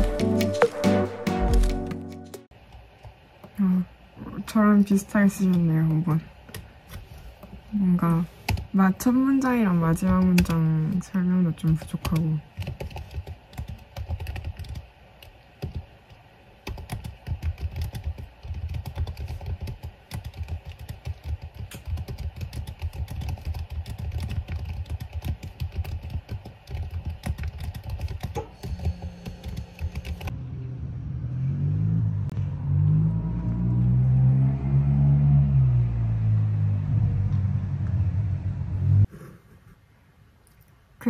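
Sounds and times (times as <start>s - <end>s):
fast keyboard typing: 0.0s - 2.4s, 9.8s - 15.9s, 16.6s - 30.3s
soft music: 0.0s - 2.5s.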